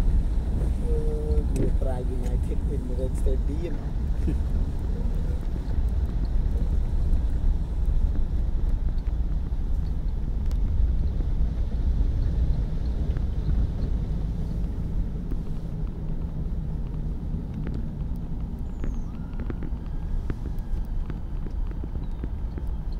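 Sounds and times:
car engine and tyre noise: 0:00.0 - 0:22.9.

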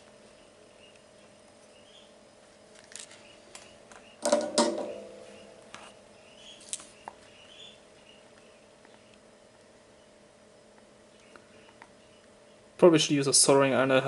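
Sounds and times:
metallic clatter: 0:04.2 - 0:05.3.

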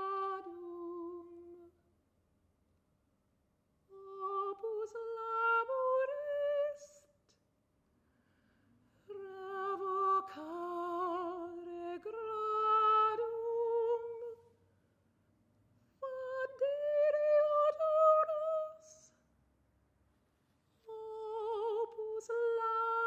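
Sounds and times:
soprano singing unaccompanied: 0:00.0 - 0:01.7, 0:03.9 - 0:07.1, 0:09.1 - 0:14.5, 0:16.0 - 0:19.2, 0:20.8 - 0:23.0.

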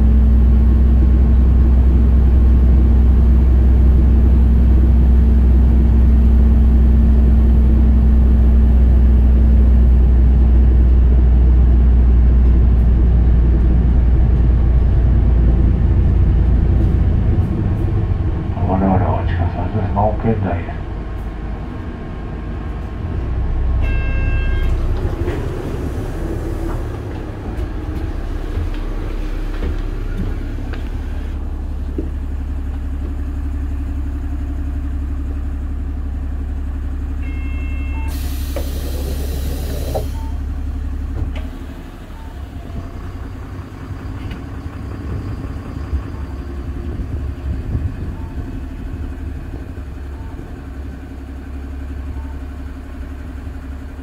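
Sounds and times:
bus diesel engine idling: 0:00.0 - 0:54.0
short chime: 0:23.8 - 0:24.8
compressed air hiss: 0:38.1 - 0:40.2.

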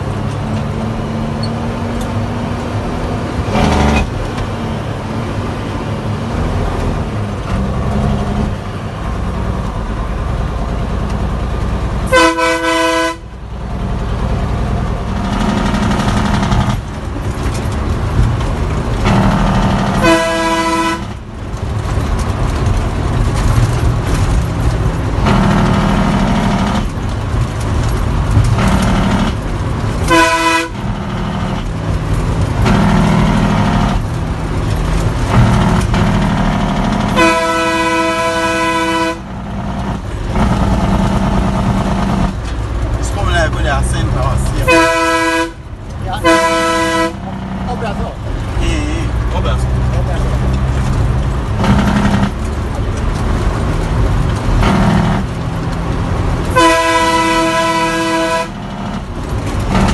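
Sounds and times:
diesel truck engine running: 0:00.0 - 0:59.9
truck horn blasts: 0:12.0 - 0:13.4, 0:19.0 - 0:21.2, 0:25.2 - 0:26.9, 0:28.5 - 0:29.4, 0:30.0 - 0:31.6, 0:32.6 - 0:34.0, 0:35.3 - 0:42.3, 0:44.4 - 0:47.8, 0:51.6 - 0:52.4, 0:54.6 - 0:55.3, 0:56.4 - 0:59.0.

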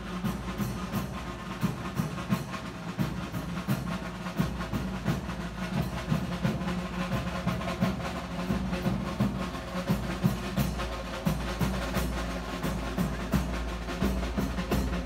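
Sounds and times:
drums beating fast rhythm: 0:00.0 - 0:15.0.

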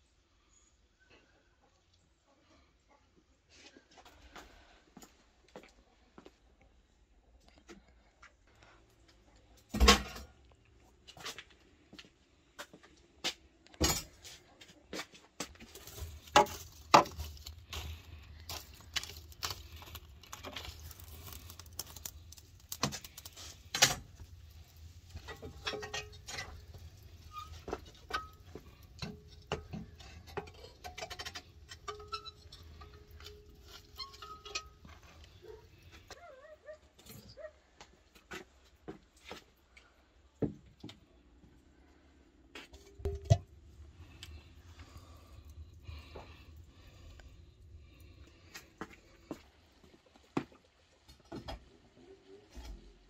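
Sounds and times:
metal clanks and knocks: 0:25.1 - 0:35.6.

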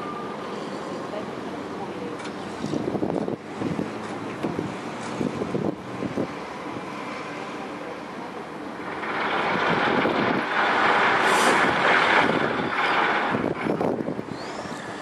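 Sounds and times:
jet airliner climbing: 0:08.5 - 0:15.0.

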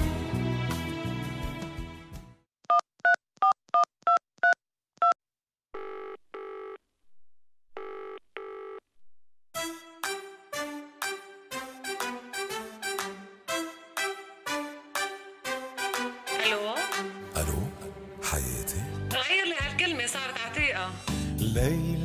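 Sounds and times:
music: 0:00.0 - 0:02.5, 0:09.6 - 0:22.0
telephone ringing tone: 0:05.8 - 0:06.8, 0:07.8 - 0:08.8.

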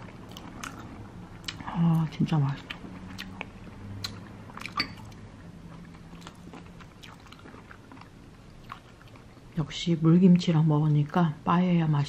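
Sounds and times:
person chewing: 0:00.0 - 0:09.6
faint low hum: 0:00.0 - 0:12.0.

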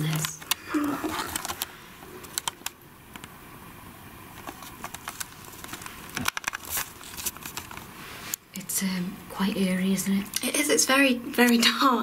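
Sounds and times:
low hiss: 0:00.0 - 0:12.0
camera handling clicks and knocks: 0:04.4 - 0:06.6.

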